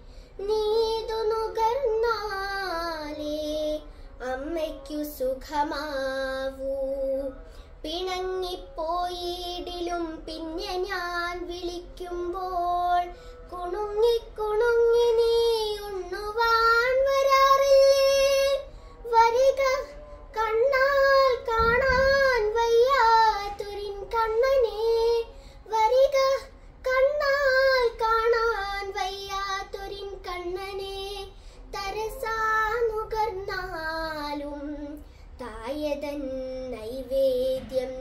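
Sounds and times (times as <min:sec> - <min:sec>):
girl breathing: 0:00.0 - 0:00.4, 0:13.1 - 0:13.5, 0:25.3 - 0:25.7, 0:31.3 - 0:31.7, 0:35.0 - 0:35.4
girl singing unaccompanied: 0:00.0 - 0:38.0.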